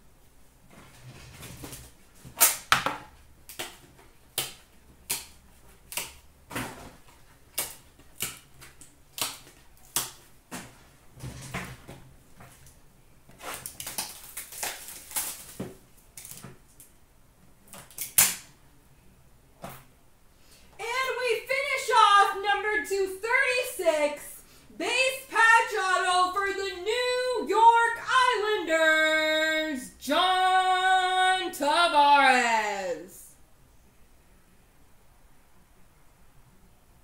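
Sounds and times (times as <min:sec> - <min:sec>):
loud card snap: 0:02.4 - 0:03.8.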